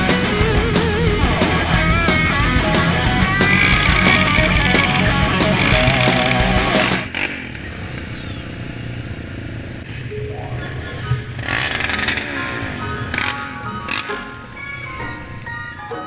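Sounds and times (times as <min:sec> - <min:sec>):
rock song: 0:00.0 - 0:07.1
quad bike engines idling: 0:00.0 - 0:15.8.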